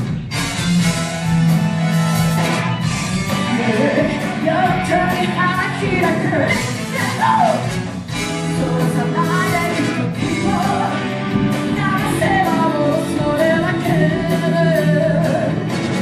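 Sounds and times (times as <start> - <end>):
live pop band playing: 0.0 - 16.0
person singing lead vocals: 3.3 - 15.8.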